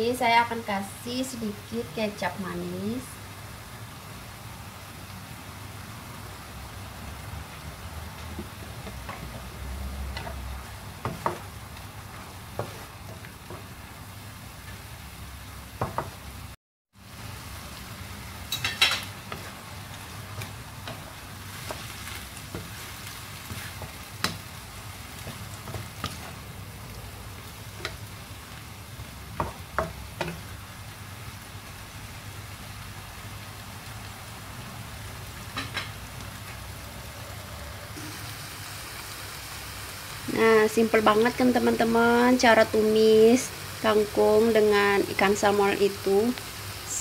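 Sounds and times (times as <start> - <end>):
food sizzling: 0.0 - 47.0
wooden spatula scraping a wok: 7.7 - 13.8, 18.6 - 24.5, 25.1 - 26.5.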